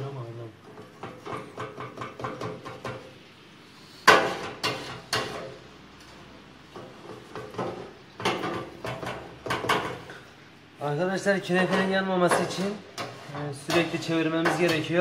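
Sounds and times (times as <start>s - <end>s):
metal pans knocking and clanking: 0.6s - 3.1s, 4.1s - 5.6s, 6.7s - 10.2s, 11.5s - 15.0s.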